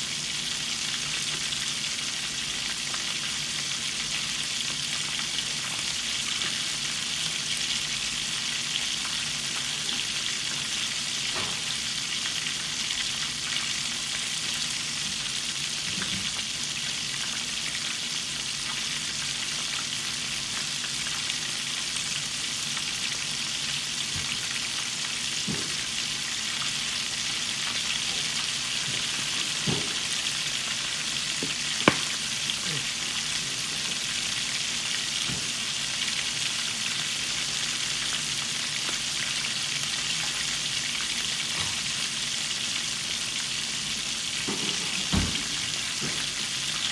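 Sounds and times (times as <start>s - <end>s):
chicken sizzling in oil: 0.0s - 46.9s.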